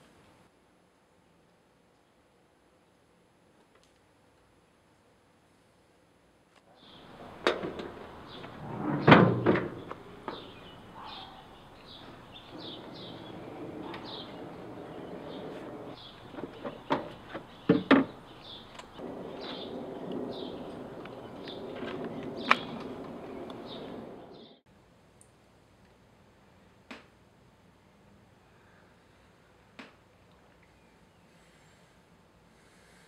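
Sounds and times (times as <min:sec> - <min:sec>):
birds chirping: 0:06.7 - 0:24.6.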